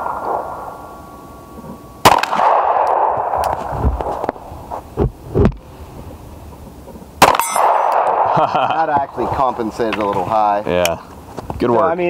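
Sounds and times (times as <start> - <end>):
pistol shot: 2.0 - 4.2, 7.2 - 8.4
dull low thumps: 2.5 - 5.6.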